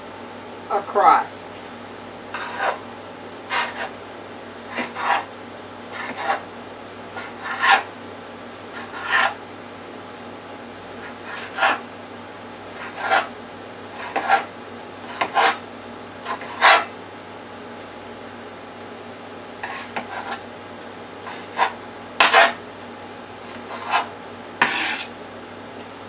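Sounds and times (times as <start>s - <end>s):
knife cutting fish on board: 21.5s - 22.6s, 23.8s - 25.1s.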